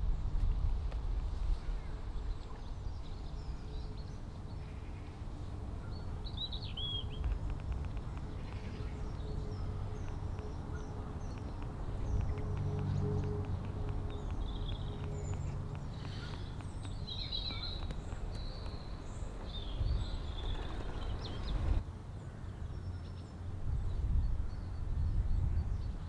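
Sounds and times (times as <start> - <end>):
birds chirping: 1.5 - 21.8
small ticks: 7.1 - 9.4, 10.0 - 10.6, 11.2 - 19.5.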